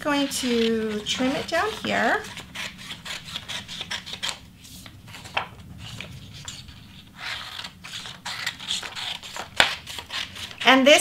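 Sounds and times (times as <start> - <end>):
scissors snipping paper: 0.2 - 4.4, 7.5 - 10.8.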